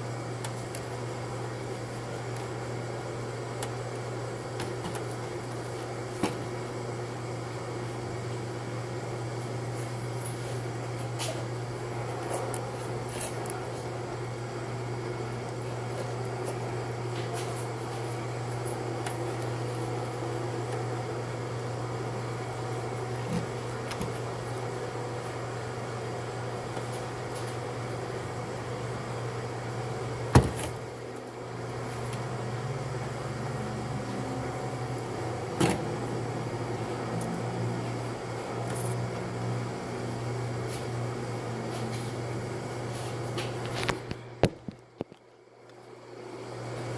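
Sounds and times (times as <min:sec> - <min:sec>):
smoker mechanical hum: 0:00.0 - 0:46.9.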